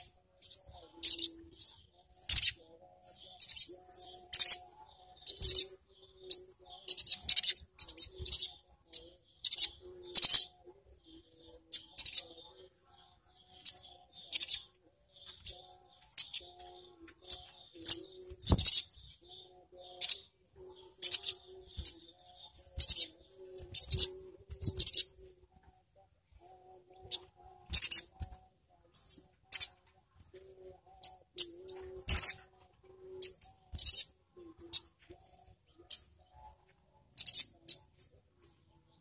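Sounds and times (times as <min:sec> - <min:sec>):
sunbird rattling chirps: 0:21.0 - 0:25.1, 0:27.1 - 0:28.1, 0:33.2 - 0:34.1.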